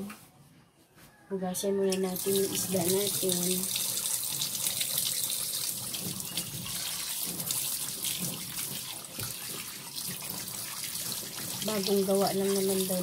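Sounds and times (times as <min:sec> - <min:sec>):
water splashing: 0:02.2 - 0:13.0
tap running into steel sink: 0:05.9 - 0:11.6.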